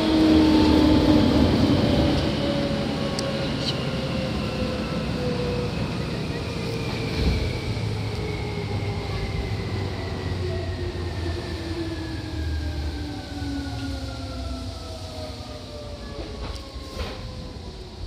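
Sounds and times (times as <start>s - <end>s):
train traction motor whine: 0.0s - 18.0s
wheels rumbling on rails: 0.0s - 18.0s.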